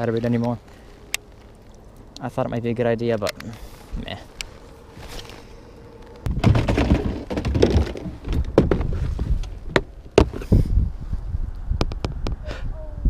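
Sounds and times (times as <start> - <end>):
wind buffeting microphone: 6.2 - 13.0
sharp knocks and thunks: 6.3 - 10.5.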